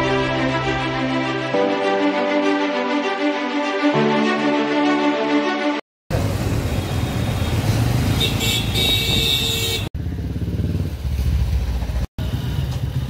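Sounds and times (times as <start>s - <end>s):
motorcycle engines in traffic: 6.1s - 13.0s.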